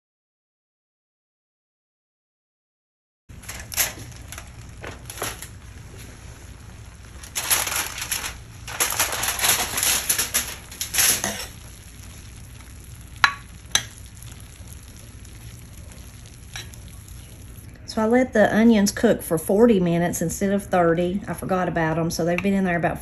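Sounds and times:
aluminium foil crinkling: 3.3 - 17.7.

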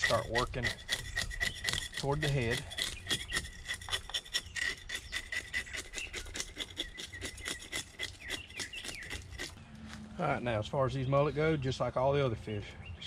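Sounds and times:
knife scraping fish scales: 0.0 - 9.6.

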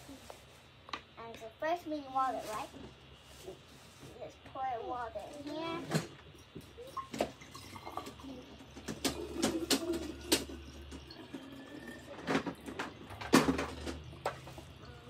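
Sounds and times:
water pouring into plastic bottle: 6.9 - 15.0.

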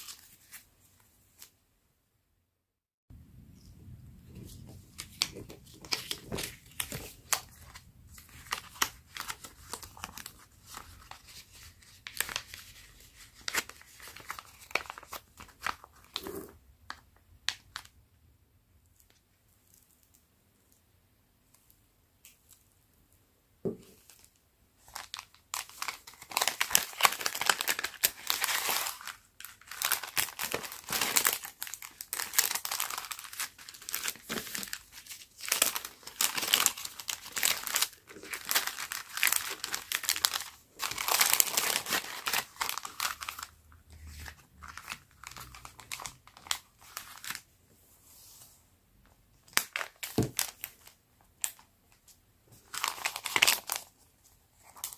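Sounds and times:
plastic bag crinkling: 24.8 - 47.4.

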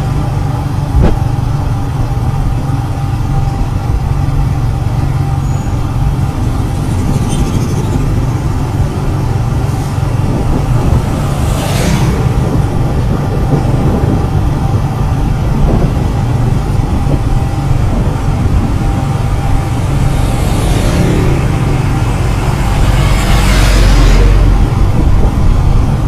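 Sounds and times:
vehicle rumble on road: 0.0 - 26.0
vehicle passing by: 5.2 - 16.4, 17.8 - 26.0.

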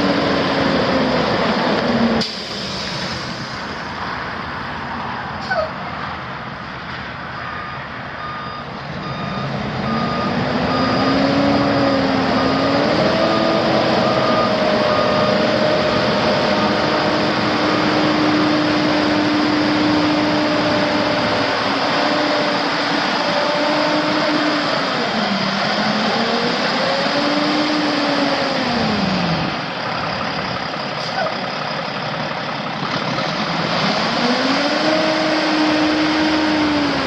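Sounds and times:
rushing noise: 0.0 - 6.2
diesel truck engine running: 0.0 - 37.0.

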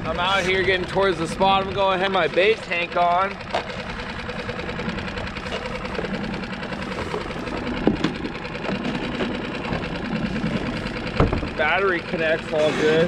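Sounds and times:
small boat motor idling: 0.0 - 13.0
knocks of gear on a boat: 0.9 - 4.2, 4.8 - 11.8.

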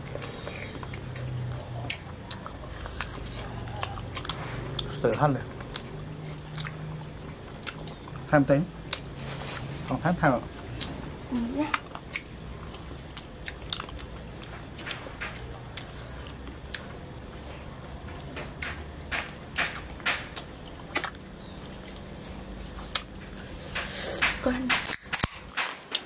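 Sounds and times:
person chewing chicken wings: 0.0 - 9.1, 11.7 - 18.3, 19.2 - 26.0
low steady hum: 0.0 - 26.0.

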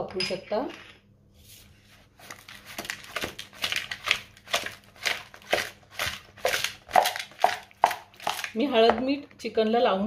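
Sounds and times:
wet squishing of mixing meat: 2.0 - 8.7.

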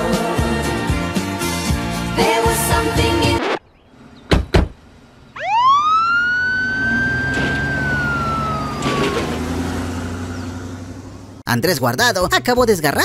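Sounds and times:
music: 0.0 - 3.4
siren wail: 5.4 - 10.6.

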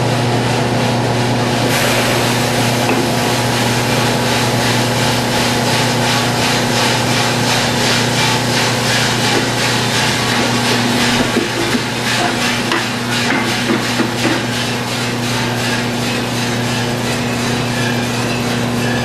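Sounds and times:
roaster motor and blower hum: 0.0 - 19.0
coffee beans pouring: 1.7 - 13.7.

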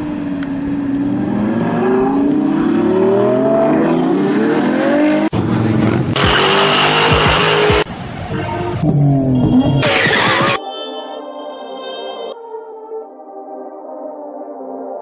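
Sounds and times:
sports car engine accelerating: 0.0 - 8.0.

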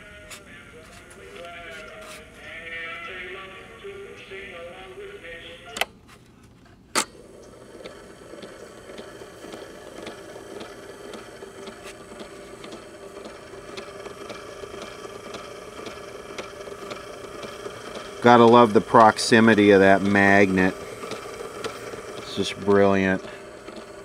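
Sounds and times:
warbly tape playback: 0.0 - 5.9, 7.3 - 24.0
tape recorder clicks: 6.9 - 24.0
tape recorder motor humming: 6.9 - 24.0
faint regular ticking: 7.8 - 24.0.

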